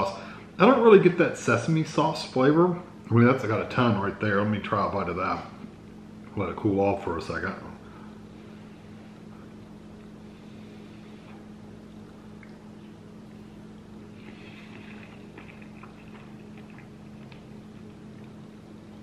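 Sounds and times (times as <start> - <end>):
low electrical hum: 0.0 - 19.0
man chewing noodles: 11.0 - 19.0.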